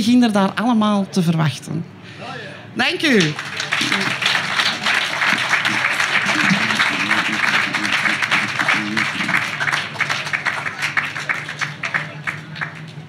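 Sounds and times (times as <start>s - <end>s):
voices in crowd: 0.6s - 13.0s
audience applauding: 3.1s - 13.0s.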